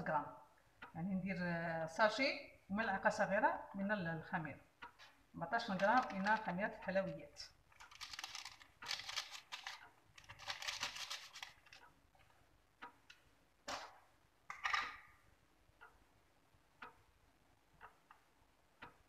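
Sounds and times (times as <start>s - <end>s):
paper sachet crinkling: 5.6s - 6.5s, 7.7s - 11.8s.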